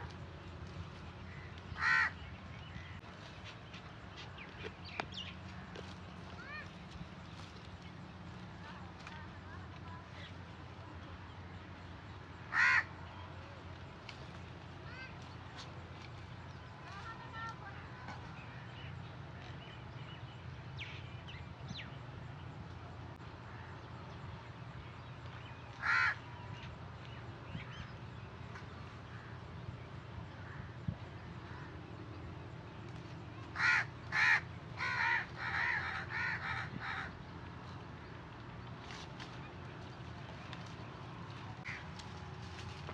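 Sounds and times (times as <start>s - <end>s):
crow cawing: 1.3s - 2.2s, 12.5s - 12.9s, 25.8s - 26.2s, 33.6s - 37.1s.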